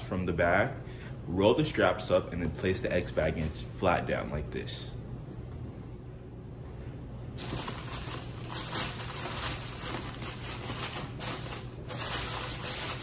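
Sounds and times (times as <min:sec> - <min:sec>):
paper rustling and crinkling: 0:07.4 - 0:13.0.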